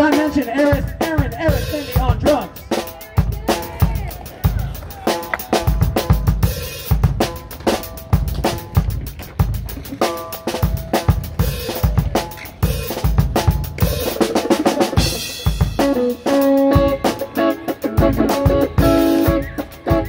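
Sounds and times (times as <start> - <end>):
drum kit beating: 0.0 - 20.0
sustained guitar chords: 13.9 - 20.0.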